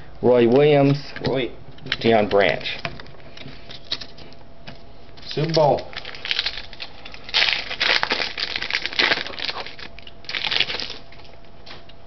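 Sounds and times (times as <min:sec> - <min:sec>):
plastic wrapper crinkling: 0:05.2 - 0:11.4.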